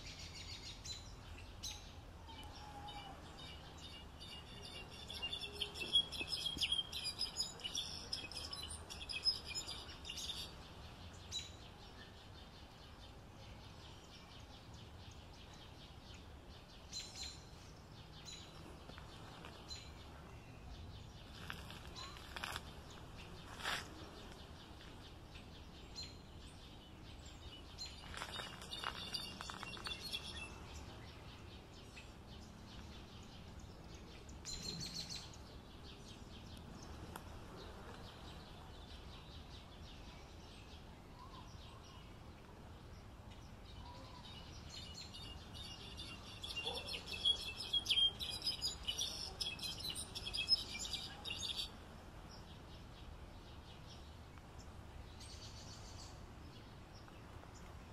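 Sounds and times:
bird singing tinkling twitter: 0.0 - 18.6, 25.4 - 35.4, 43.8 - 51.7
outdoor background hiss: 0.0 - 57.9.

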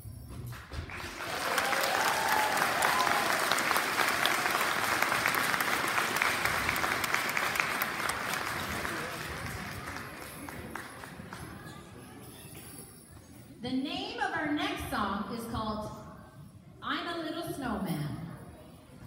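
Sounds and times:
audience applauding: 0.5 - 11.7.

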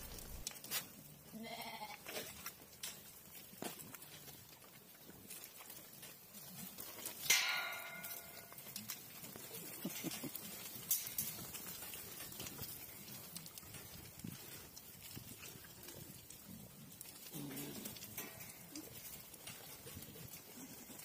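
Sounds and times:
sheep bleating: 1.3 - 2.1.

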